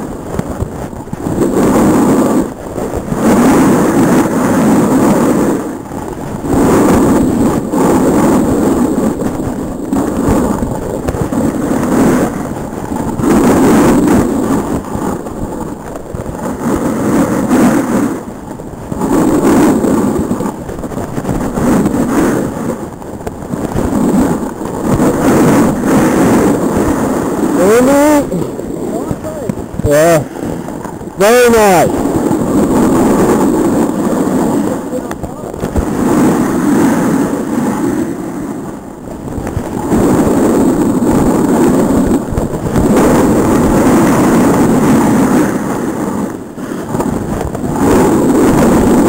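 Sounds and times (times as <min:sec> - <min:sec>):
snowboard scraping snow: 0:00.0 - 0:49.0
wind on microphone: 0:00.0 - 0:49.0
voice with gliding pitch: 0:27.6 - 0:30.3.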